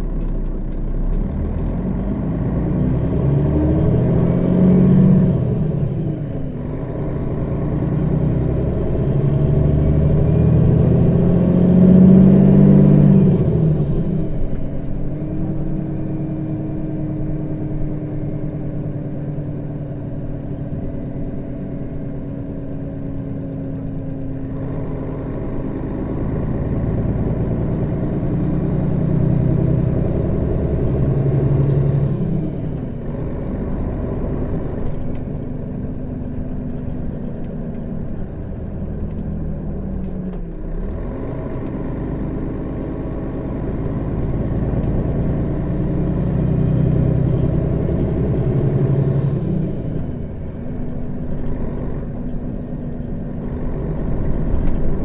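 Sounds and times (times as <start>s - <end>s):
bus engine pulling under load: 0.0s - 55.0s.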